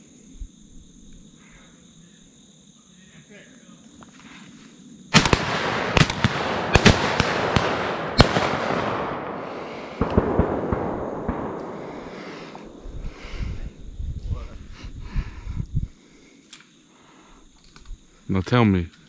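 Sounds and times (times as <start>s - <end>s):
loud firework bangs: 5.1s - 14.0s
dense crackling: 5.2s - 14.0s.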